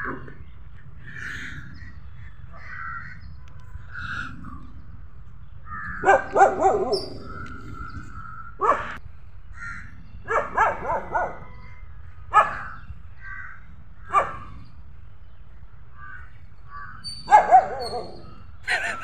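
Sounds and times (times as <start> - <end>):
dogs barking: 5.8 - 9.0, 10.2 - 11.7, 12.3 - 12.9, 14.0 - 14.6, 17.0 - 19.0.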